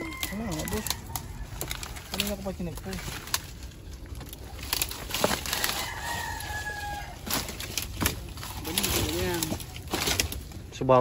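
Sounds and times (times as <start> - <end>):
rooster crowing: 0.0 - 2.2, 5.2 - 8.1
dry leaves crackling: 0.0 - 11.0.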